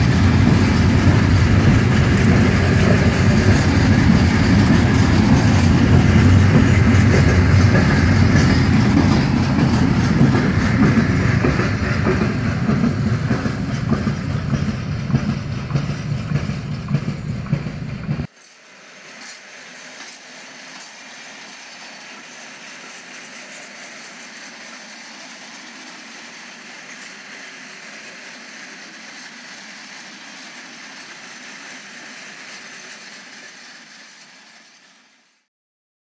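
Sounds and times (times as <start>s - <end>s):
model train motor whirring: 18.3s - 35.4s.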